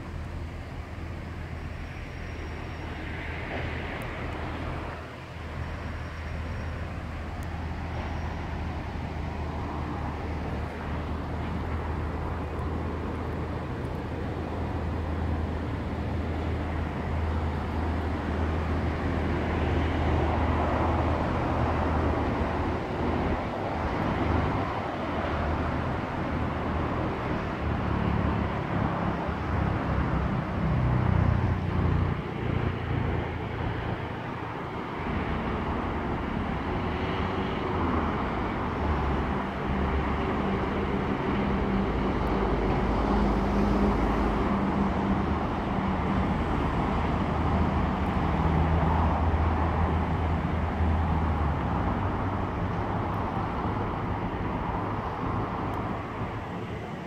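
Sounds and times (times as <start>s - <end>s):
locomotive diesel engine drone: 0.0s - 57.0s.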